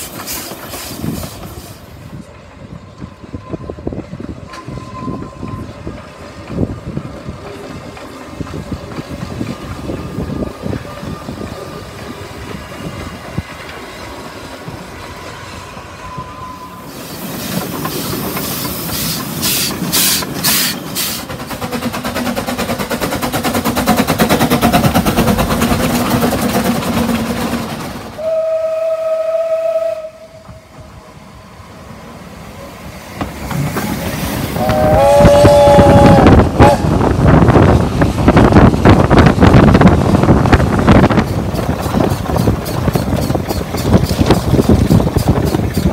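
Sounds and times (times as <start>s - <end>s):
steam locomotive chuffing: 0.0s - 45.9s
steam whistle blowing: 15.9s - 17.1s, 28.2s - 30.6s, 34.5s - 37.0s.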